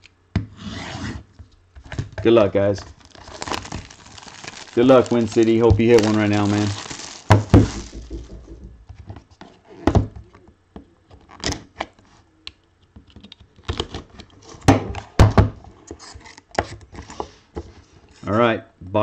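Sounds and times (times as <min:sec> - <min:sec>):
cardboard scraping and rustling: 0:02.8 - 0:09.8
cardboard box thumps and knocks: 0:07.3 - 0:08.9.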